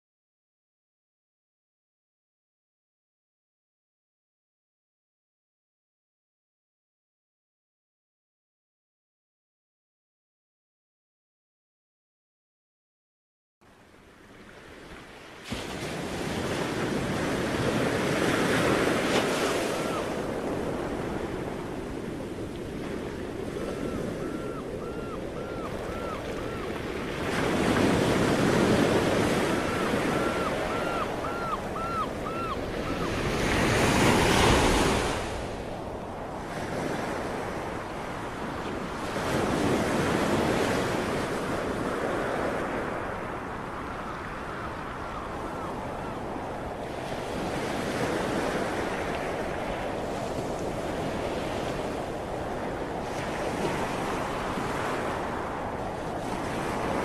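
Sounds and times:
sea waves washing onto shore: 14.9s - 23.7s.

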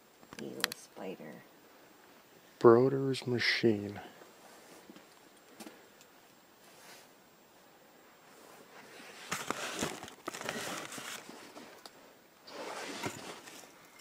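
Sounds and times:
cardboard boxes rustling and scraping: 8.4s - 11.8s, 12.4s - 14.0s.

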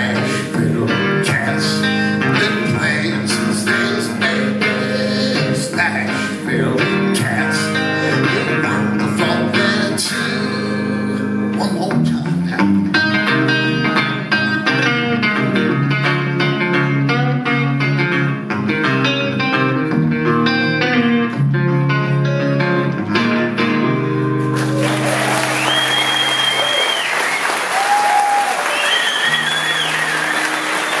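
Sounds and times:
audience applause and cheering: 24.5s - 31.0s
whistles from audience: 24.6s - 31.0s.

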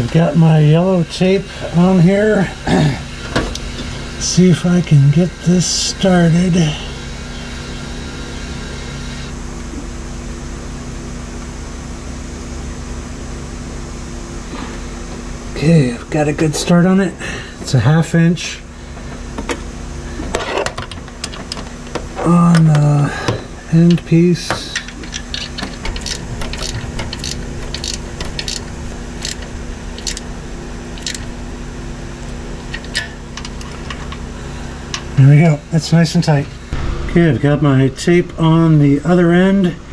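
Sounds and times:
machine hum with hiss: 0.0s - 39.9s
wrench clicking on metal: 25.1s - 29.4s, 30.0s - 30.3s, 31.0s - 31.3s.

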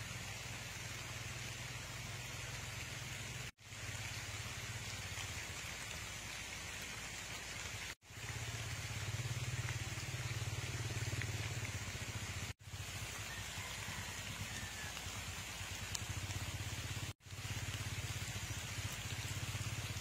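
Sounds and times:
rain on foliage: 0.0s - 20.0s.

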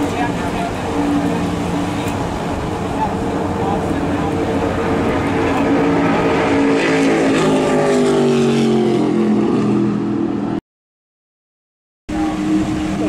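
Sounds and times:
race car engine passing by: 0.0s - 10.6s.

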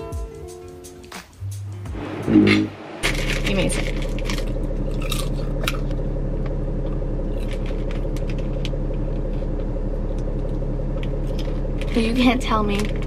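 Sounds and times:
popcorn being eaten: 3.8s - 12.0s.

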